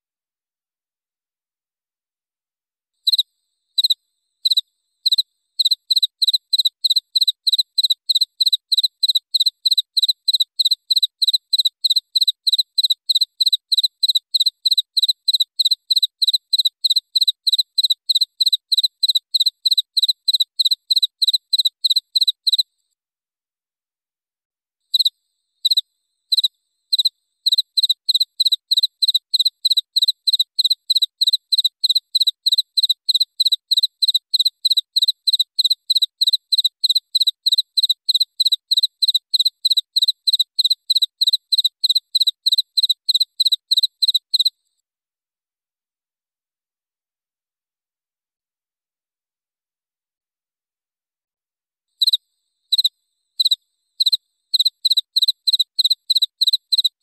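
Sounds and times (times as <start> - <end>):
cricket chirping: 3.0 - 22.7, 24.9 - 44.6, 52.0 - 57.0.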